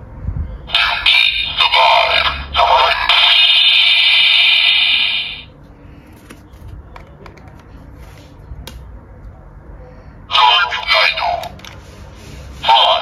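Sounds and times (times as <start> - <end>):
loud steady electronic tone: 0.5 - 5.6.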